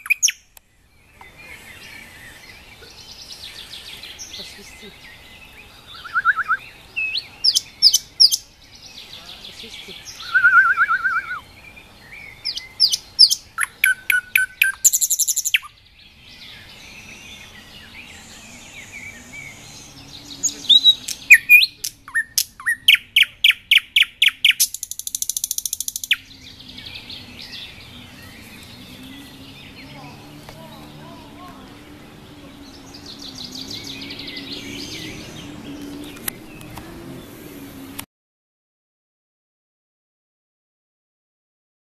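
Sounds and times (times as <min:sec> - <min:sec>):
nightingale singing: 0:00.0 - 0:37.6.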